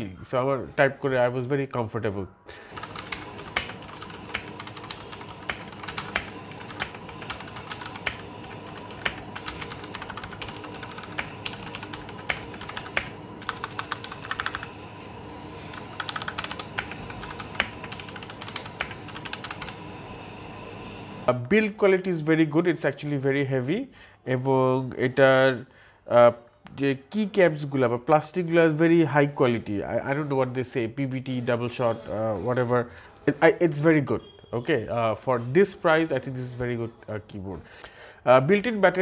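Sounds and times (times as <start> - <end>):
typing on mechanical keyboard: 2.7 - 14.8, 15.5 - 19.8.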